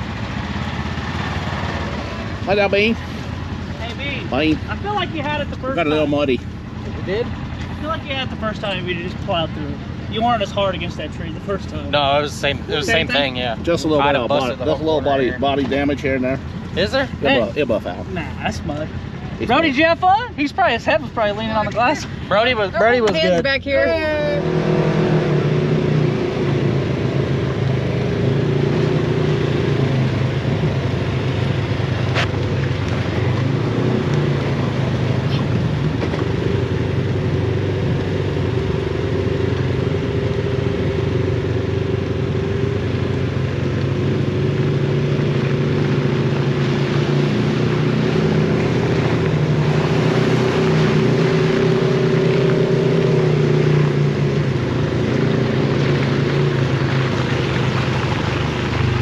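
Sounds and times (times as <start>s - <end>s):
utility vehicle engine running: 0.0s - 59.0s.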